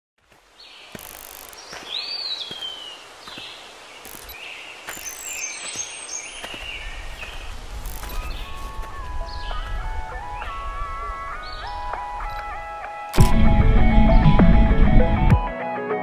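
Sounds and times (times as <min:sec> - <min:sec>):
footsteps on dirt trail: 0:00.2 - 0:10.7
birds chirping and whistling: 0:00.7 - 0:13.0.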